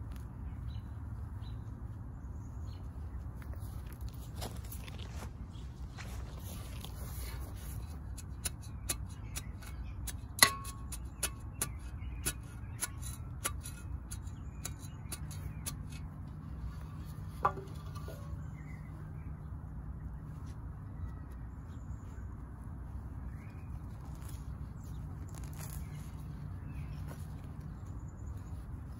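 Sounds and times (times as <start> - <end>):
garden tool chopping soil: 6.7 - 16.6, 24.0 - 27.0.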